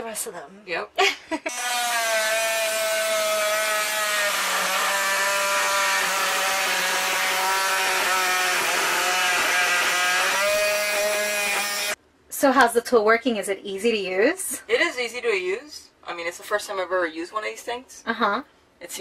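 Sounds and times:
oscillating multi-tool cutting screw: 0:01.5 - 0:12.0.

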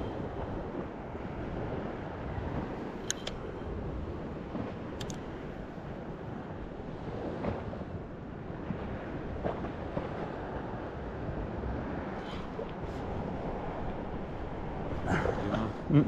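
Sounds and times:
faint clicks: 0:03.0 - 0:03.4, 0:05.0 - 0:05.2.

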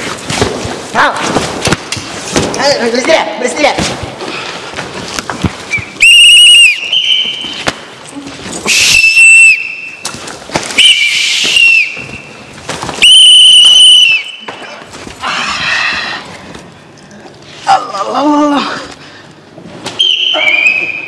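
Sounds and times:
pea whistle trilling blasts: 0:05.7 - 0:07.6, 0:08.7 - 0:10.0, 0:10.8 - 0:12.3, 0:13.0 - 0:14.5, 0:20.0 - 0:21.0
knocks and scuffling: 0:11.4 - 0:13.0.

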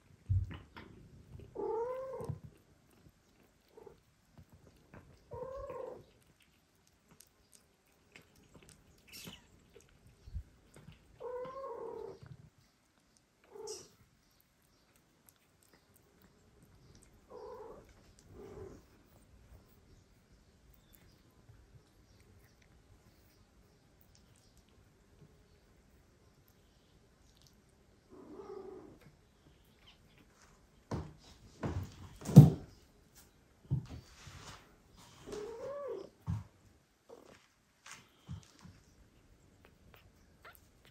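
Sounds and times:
cat meowing: 0:01.6 - 0:02.4, 0:05.3 - 0:06.0
soft taps and rustles: 0:30.3 - 0:39.0.

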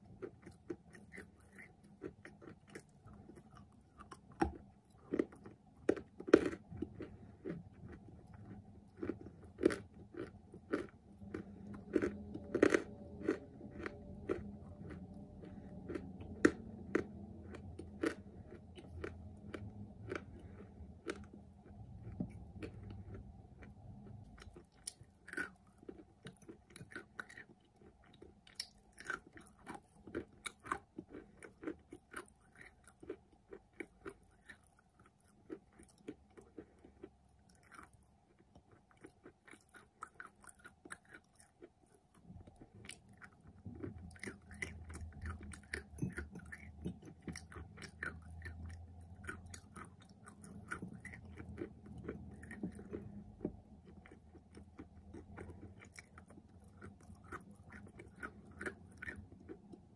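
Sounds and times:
chewing crunches: 0:00.0 - 0:59.9
low hum: 0:10.9 - 0:24.4.

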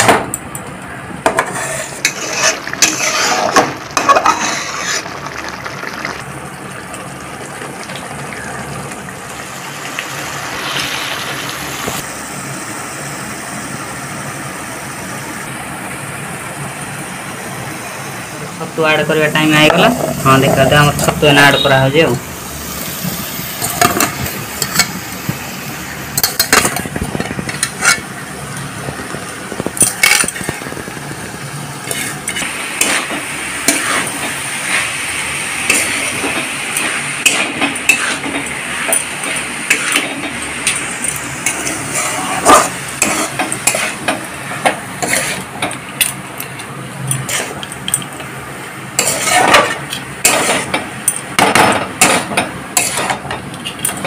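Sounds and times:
spatula scraping and clinking pan: 0:01.3 - 0:05.4, 0:31.8 - 0:34.8, 0:35.7 - 0:45.7, 0:49.0 - 0:50.8, 0:52.0 - 0:53.3
mushrooms sizzling in oil: 0:01.5 - 0:53.2.

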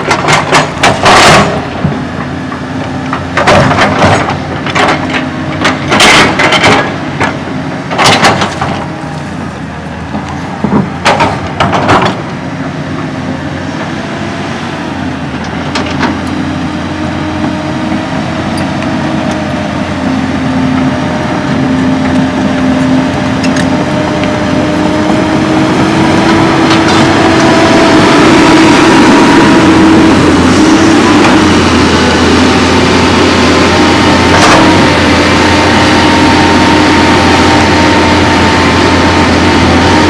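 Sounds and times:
loud metal clanks: 0:00.0 - 0:01.8, 0:03.2 - 0:08.9
excavator engine and hydraulics: 0:00.0 - 0:40.0.

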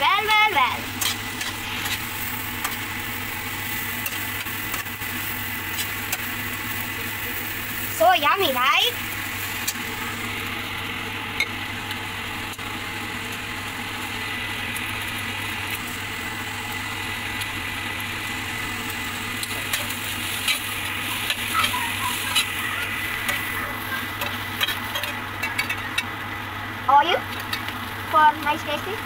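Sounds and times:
vegetables sizzling in a wok: 0:00.0 - 0:29.0.

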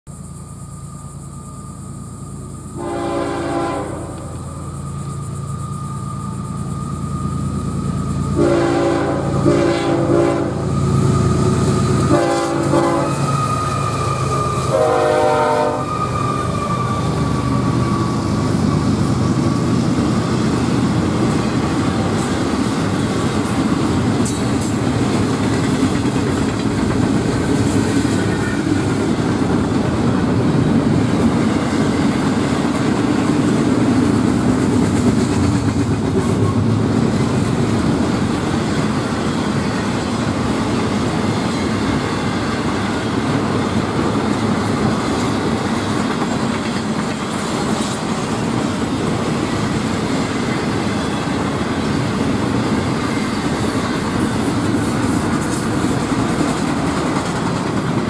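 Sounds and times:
steel wheels rumbling on rail: 0:00.1 - 0:58.0
wheels clicking over rail joints: 0:15.9 - 0:58.0.

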